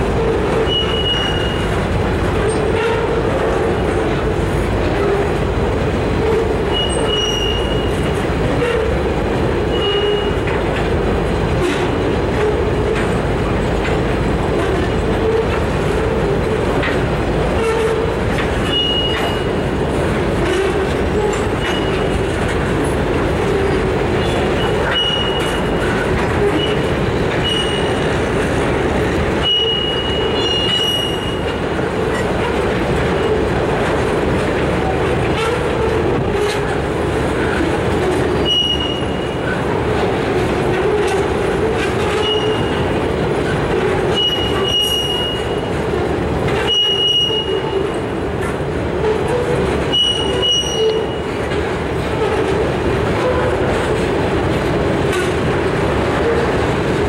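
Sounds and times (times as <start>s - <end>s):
train rumbling and rattling: 0.0s - 57.0s
high-pitched wheel squeals: 0.6s - 1.8s, 6.2s - 8.9s, 9.7s - 10.4s, 18.6s - 19.6s, 20.4s - 22.2s, 24.2s - 28.1s, 29.4s - 31.6s, 38.4s - 39.6s, 42.0s - 43.0s, 44.1s - 45.8s, 46.6s - 48.0s, 49.1s - 51.3s.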